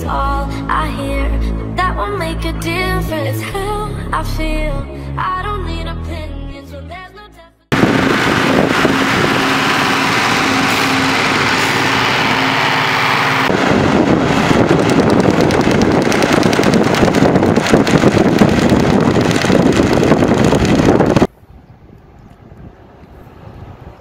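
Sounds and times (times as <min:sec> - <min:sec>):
manure spreader working: 0:07.7 - 0:21.3
tractor engine running: 0:07.7 - 0:21.3.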